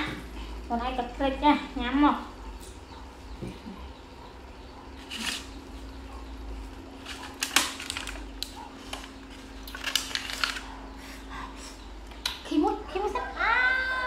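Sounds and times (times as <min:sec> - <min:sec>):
plastic container crackling: 0:07.0 - 0:10.7.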